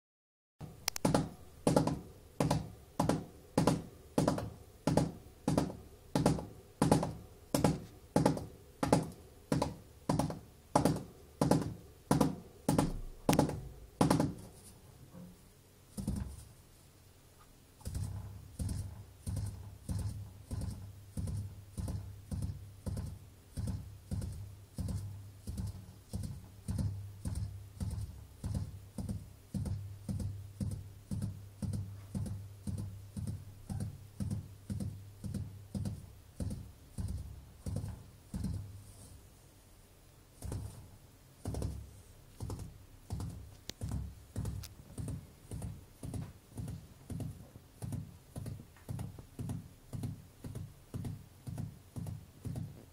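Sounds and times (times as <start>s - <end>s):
gerbil drumming hind feet: 0.6s - 14.7s, 15.9s - 16.5s, 17.8s - 38.8s.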